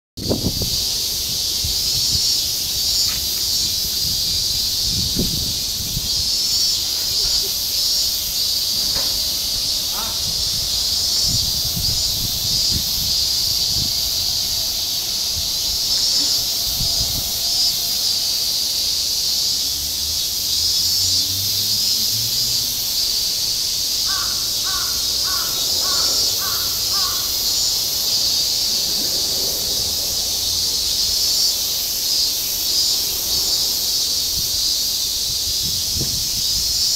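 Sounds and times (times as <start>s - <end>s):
cicadas chorus: 0.2s - 36.9s
crow cawing: 9.9s - 10.4s, 24.0s - 27.5s.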